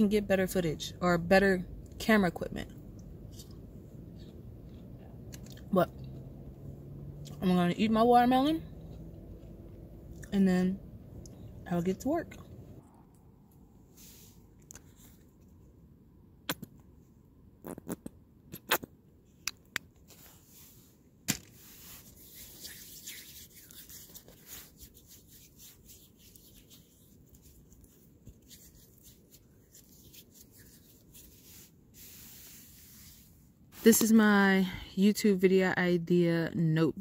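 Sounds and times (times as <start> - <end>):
hands rubbing together: 21.6 - 34.2.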